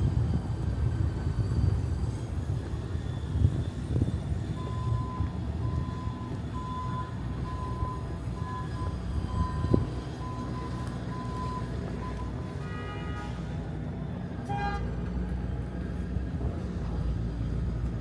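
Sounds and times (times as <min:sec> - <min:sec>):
street traffic rumbling: 0:00.0 - 0:18.0.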